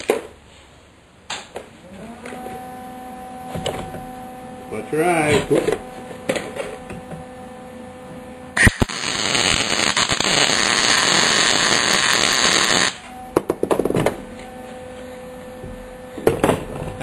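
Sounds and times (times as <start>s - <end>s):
welding arc crackling hiss: 8.6s - 13.1s.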